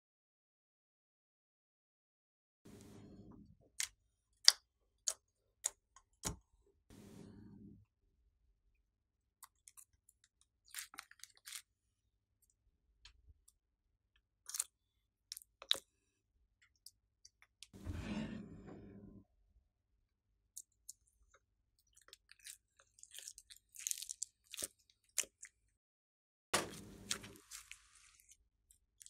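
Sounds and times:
sticky slime squelching: 9.4 - 11.7, 21.8 - 25.6, 26.6 - 28.4.

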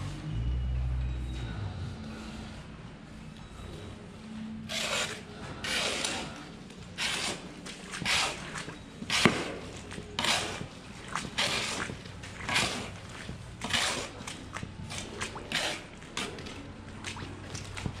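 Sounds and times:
scraper rasping through sand: 4.7 - 6.4, 7.0 - 9.4.

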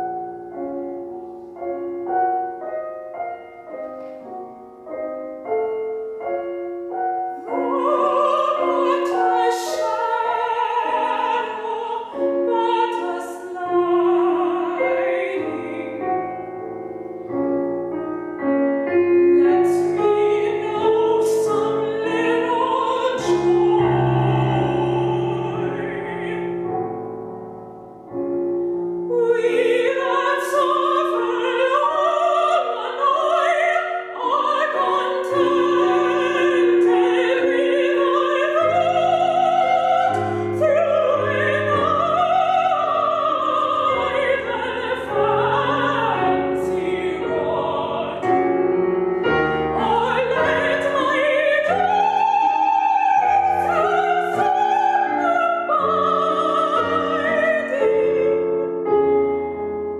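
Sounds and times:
grand piano: 0.0 - 59.9
woman singing operatically: 7.5 - 16.2, 19.3 - 26.7, 29.1 - 48.4, 49.7 - 58.7.

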